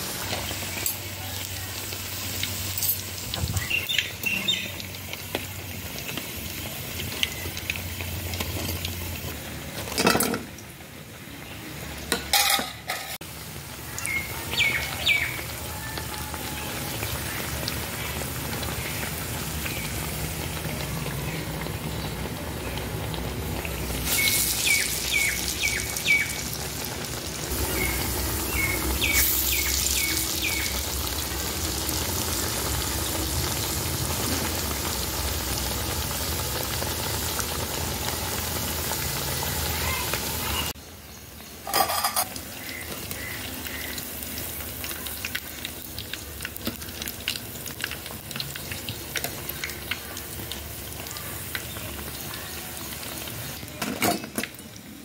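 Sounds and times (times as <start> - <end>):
food deep-frying in oil: 0.0 - 55.0
bird chirping: 24.1 - 26.4, 27.6 - 30.8.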